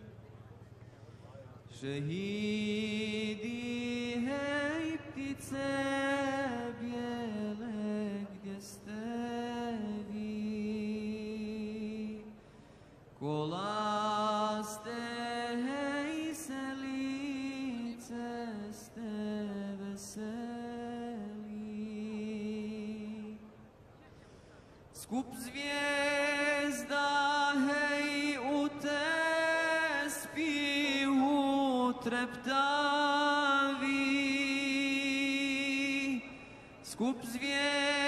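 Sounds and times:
man chanting: 0:25.0 - 0:38.0.

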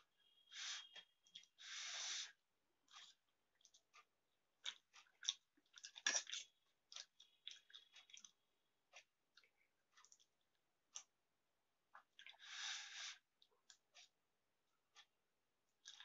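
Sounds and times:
person chewing noodles: 0:00.2 - 0:02.3, 0:02.9 - 0:11.2, 0:11.9 - 0:14.2, 0:15.8 - 0:16.0.

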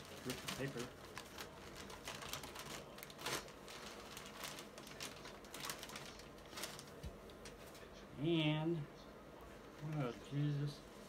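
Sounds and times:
wrapping paper rustling: 0:00.0 - 0:07.9.

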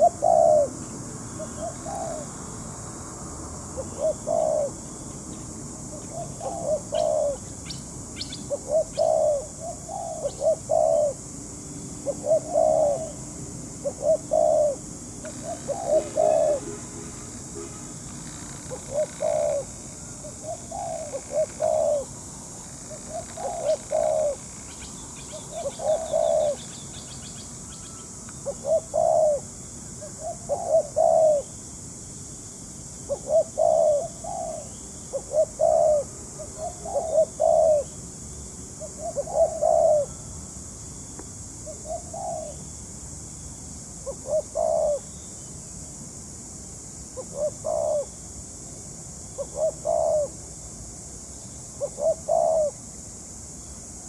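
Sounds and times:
dove cooing: 0:00.0 - 0:02.4, 0:03.8 - 0:04.9, 0:05.9 - 0:07.5, 0:08.2 - 0:11.3, 0:12.0 - 0:13.2, 0:13.8 - 0:17.0, 0:18.7 - 0:22.2, 0:22.9 - 0:26.8, 0:28.4 - 0:31.5, 0:33.1 - 0:37.9, 0:38.8 - 0:40.2, 0:41.7 - 0:42.6, 0:44.0 - 0:45.1, 0:47.2 - 0:48.1, 0:49.4 - 0:50.4, 0:51.8 - 0:52.8.

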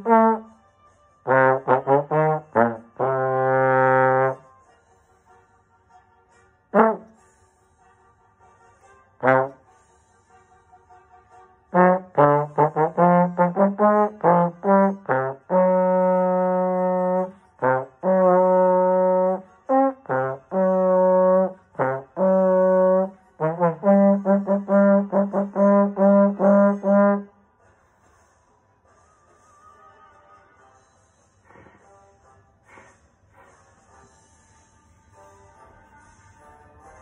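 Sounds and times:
solo trombone: 0:00.0 - 0:00.6, 0:01.2 - 0:04.5, 0:06.7 - 0:07.3, 0:09.2 - 0:09.9, 0:11.7 - 0:27.3.

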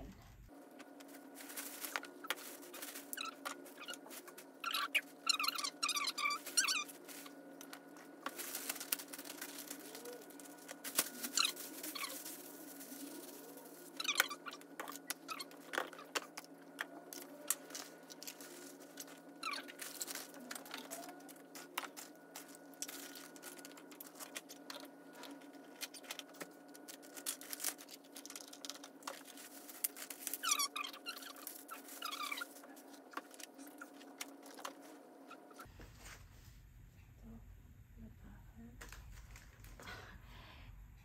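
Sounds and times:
bags and clothes rustling: 0:00.9 - 0:07.5, 0:08.2 - 0:16.0, 0:17.3 - 0:36.3.

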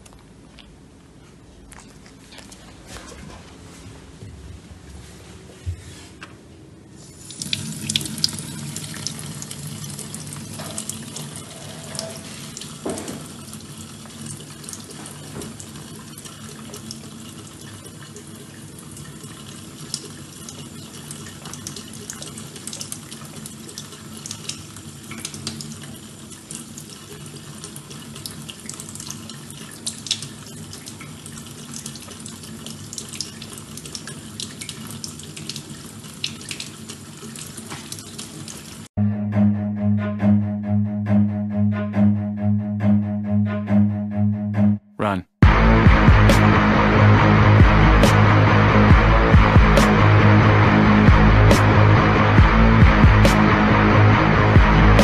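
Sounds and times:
tap water running into steel sink: 0:07.0 - 0:38.9.

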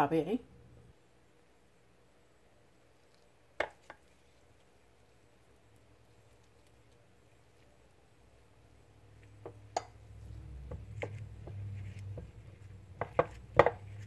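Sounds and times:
hand squishing thick paste: 0:02.8 - 0:14.0.

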